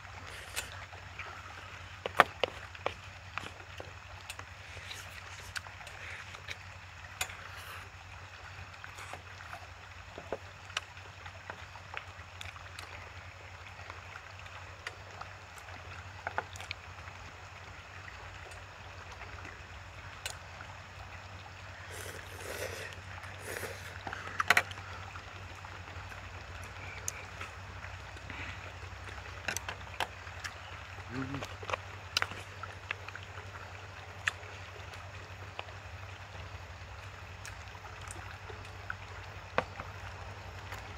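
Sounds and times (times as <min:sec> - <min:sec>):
outdoor hiss: 0:00.0 - 0:03.5, 0:07.2 - 0:09.6, 0:21.4 - 0:29.2
chewing: 0:00.2 - 0:06.6, 0:08.8 - 0:09.6, 0:12.4 - 0:13.0, 0:21.8 - 0:25.7, 0:26.6 - 0:35.0.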